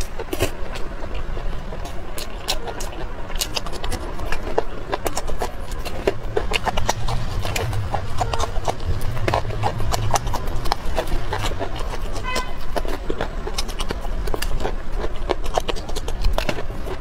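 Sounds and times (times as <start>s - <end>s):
chewing and crunching: 0.0s - 17.0s
steady low rumble: 3.0s - 17.0s.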